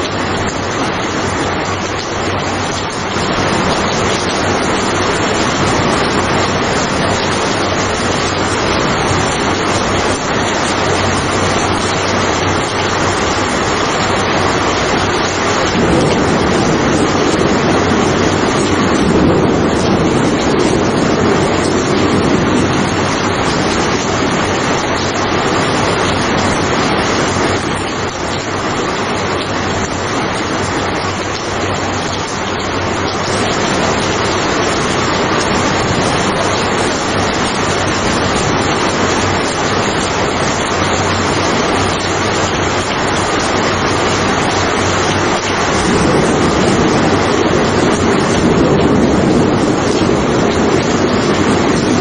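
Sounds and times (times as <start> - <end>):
heavy rain hiss: 0.0 - 52.0
deep rumble: 0.2 - 27.9.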